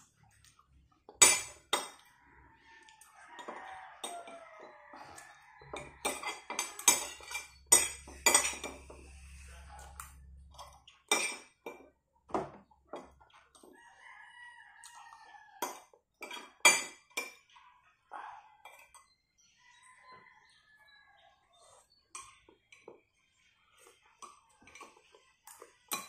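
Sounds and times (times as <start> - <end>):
rooster crowing: 2.0 - 10.5, 13.7 - 15.8
spoon scraping ceramic plate: 5.0 - 11.4.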